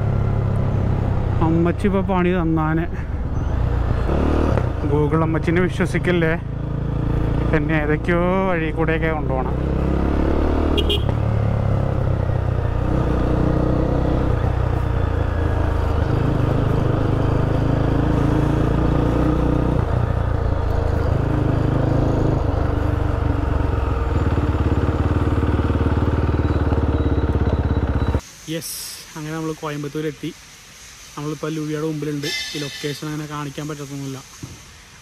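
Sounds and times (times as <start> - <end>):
motorcycle engine revving: 0.0 - 28.2.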